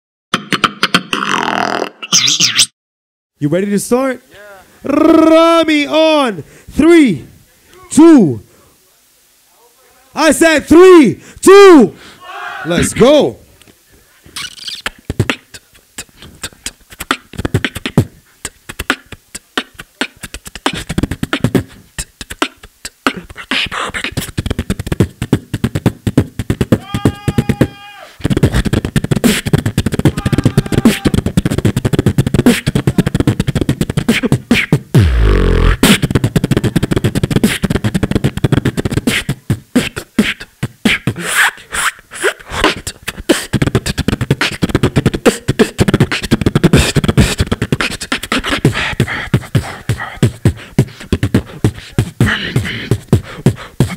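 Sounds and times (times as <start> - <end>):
beatboxing into a microphone: 0.3 - 2.6, 4.8 - 5.4, 14.2 - 53.9
deep bass drop: 35.0 - 37.0.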